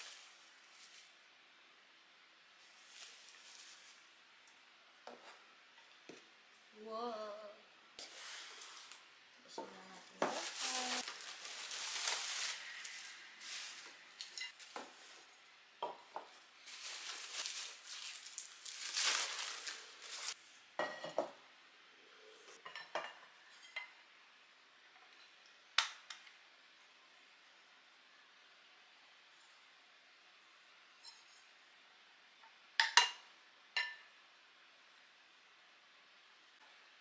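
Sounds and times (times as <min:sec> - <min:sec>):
bubble wrap crinkling: 0:10.0 - 0:15.4, 0:16.6 - 0:20.4.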